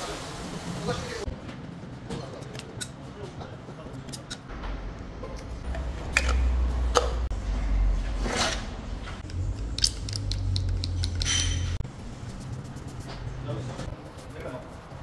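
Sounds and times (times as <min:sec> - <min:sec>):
oil can clicks and squishes: 0:09.2 - 0:11.6.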